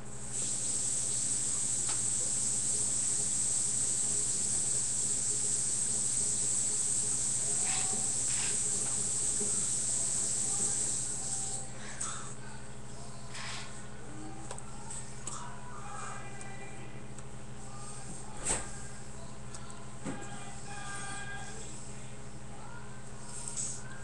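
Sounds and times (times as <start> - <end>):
high-pitched electronic hiss: 0.3 - 11.6.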